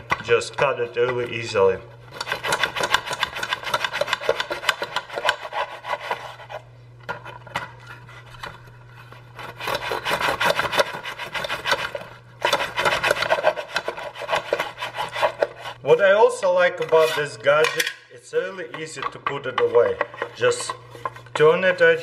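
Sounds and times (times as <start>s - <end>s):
knife sawing through crusty bread: 2.1s - 6.7s, 9.3s - 15.8s.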